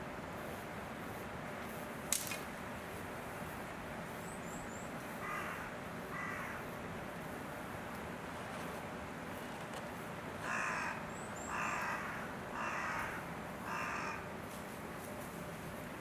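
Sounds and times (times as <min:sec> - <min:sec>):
steady background noise: 0:00.0 - 0:16.0
sharp click: 0:02.1 - 0:02.5
crow cawing: 0:05.2 - 0:06.7, 0:10.4 - 0:14.3.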